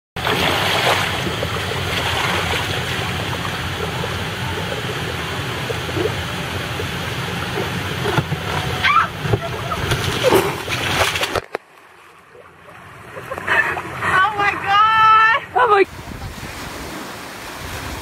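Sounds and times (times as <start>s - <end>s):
water rushing down slide: 0.2s - 11.6s
low hum: 0.2s - 15.6s.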